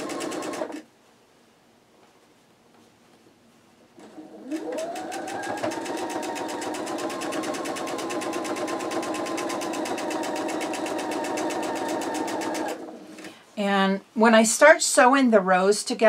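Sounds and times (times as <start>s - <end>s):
sewing machine stitching: 0.0s - 0.9s, 4.0s - 13.3s.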